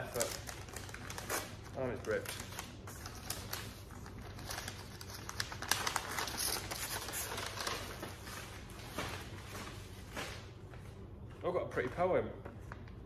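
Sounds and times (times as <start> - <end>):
paper rustling and crinkling: 0.0 - 10.4.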